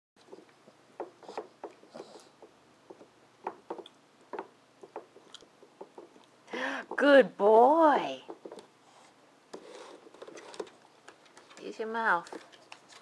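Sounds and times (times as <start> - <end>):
dog claws tapping on wood: 0.2 - 6.2.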